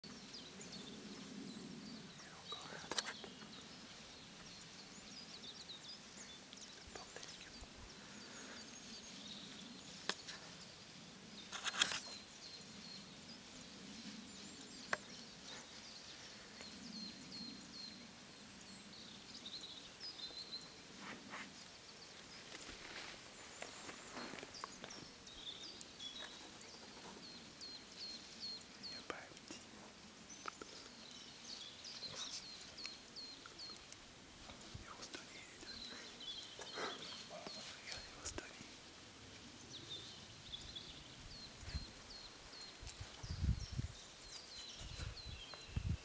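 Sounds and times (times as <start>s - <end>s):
clicks and rustles: 11.5s - 12.2s.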